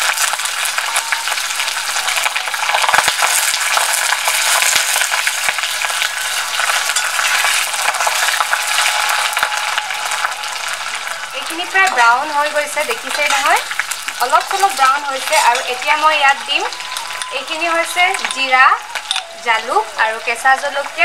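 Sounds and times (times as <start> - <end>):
onions sizzling in hot oil: 0.0 - 21.0.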